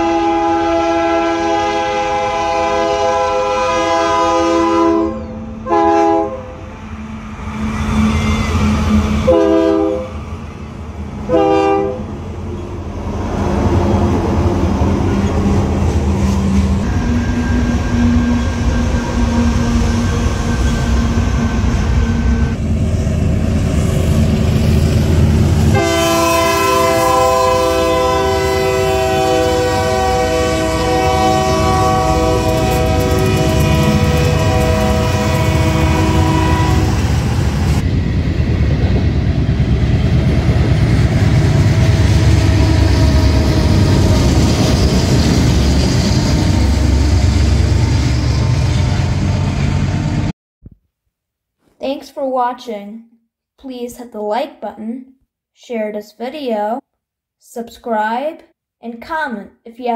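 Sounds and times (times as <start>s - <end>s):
train air horn blasts: 0.0s - 6.6s, 9.0s - 10.2s, 11.3s - 12.1s, 25.7s - 37.3s
diesel locomotive rumble: 6.6s - 50.3s.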